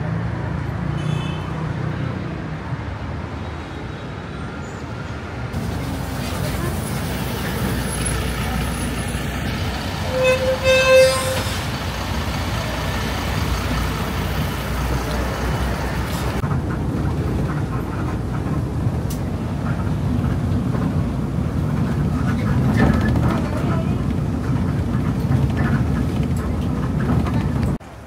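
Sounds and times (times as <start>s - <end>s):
street traffic rumble: 0.0s - 28.0s
vehicle horn tooting: 10.0s - 11.7s.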